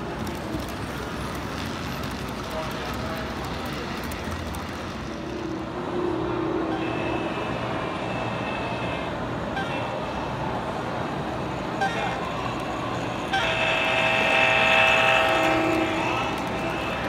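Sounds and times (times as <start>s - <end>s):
crowd chatter: 0.0s - 9.1s, 9.7s - 17.0s
model locomotive horn: 6.4s - 10.0s, 13.2s - 17.0s.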